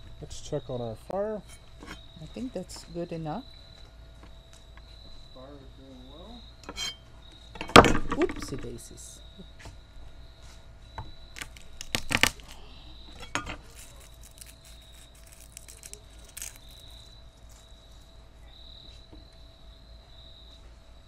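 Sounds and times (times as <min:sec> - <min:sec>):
crickets chirping: 0:00.0 - 0:21.0
sharp pops from fire: 0:11.3 - 0:12.6
wood fire crackling: 0:11.3 - 0:19.3.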